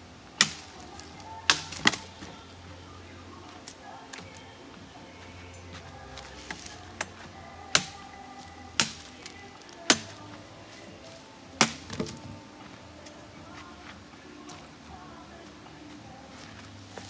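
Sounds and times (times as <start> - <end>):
firewood being chopped: 0.4 - 2.4, 5.7 - 13.2.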